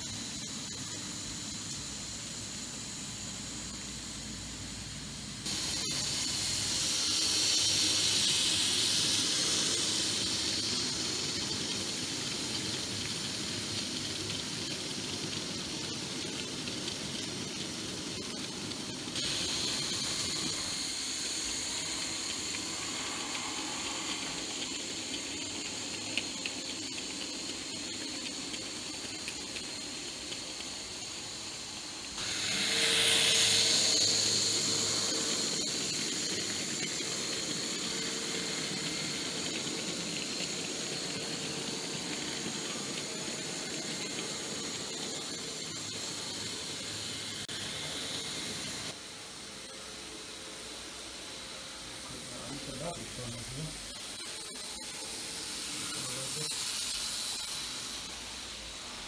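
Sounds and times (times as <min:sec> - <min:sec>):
model train motors whining: 0:00.0 - 0:59.0.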